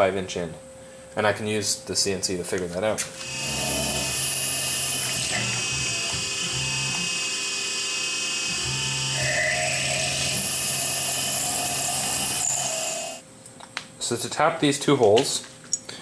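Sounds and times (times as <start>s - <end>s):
mill spindle whine: 3.0s - 13.2s
drill bit drilling aluminum: 3.2s - 13.2s.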